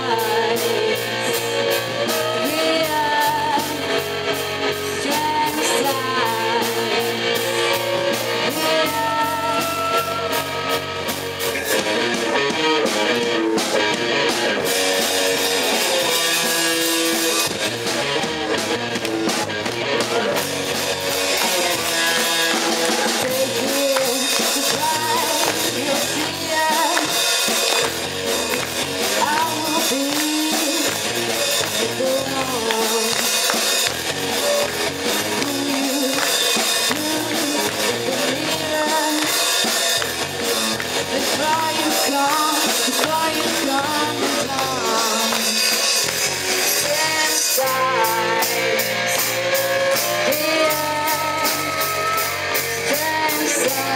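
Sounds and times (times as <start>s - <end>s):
woman singing lead: 0.0s - 11.1s, 21.3s - 27.9s, 29.0s - 40.0s, 41.0s - 53.9s
bass guitar: 0.0s - 53.9s
drum kit: 0.0s - 53.9s
electric guitar: 0.0s - 53.9s.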